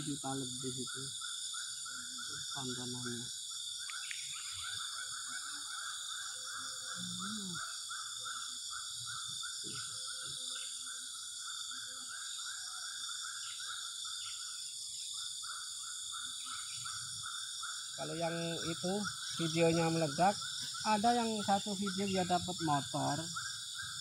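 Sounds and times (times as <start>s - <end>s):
high-pitched insect drone: 0.0s - 24.0s
rhythmic pulsing insect call: 0.0s - 24.0s.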